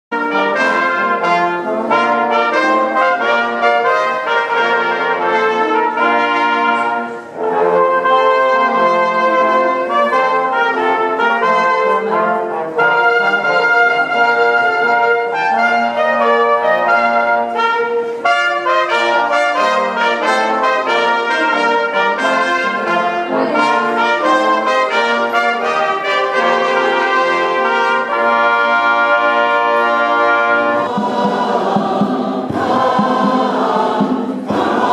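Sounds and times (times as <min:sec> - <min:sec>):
brass ensemble with trumpets: 0:00.1 - 0:34.9.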